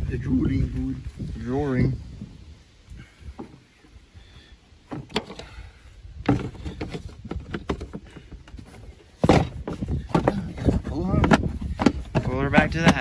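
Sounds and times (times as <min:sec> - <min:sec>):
plastic panels knocking and clicking: 0:06.2 - 0:13.0.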